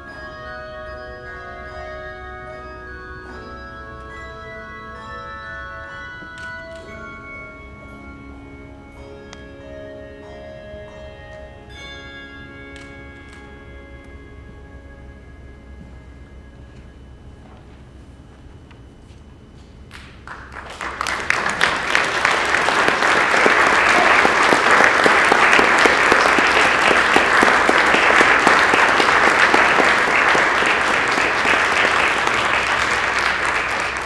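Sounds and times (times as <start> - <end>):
audience applauding: 19.9 - 34.0.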